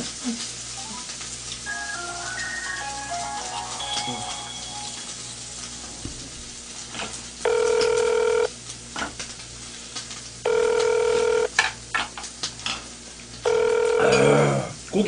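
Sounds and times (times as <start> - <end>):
phone ringback tone beep: 1.7 - 5.0, 7.4 - 8.5, 10.4 - 11.5, 13.4 - 14.2.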